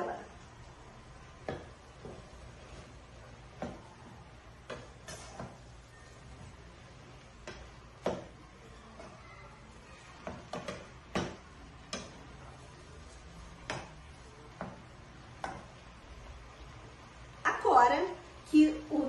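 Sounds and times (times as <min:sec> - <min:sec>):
wooden spatula knocking pot: 0:01.4 - 0:02.4, 0:03.5 - 0:03.9, 0:07.3 - 0:09.2, 0:10.2 - 0:12.4, 0:13.6 - 0:15.8.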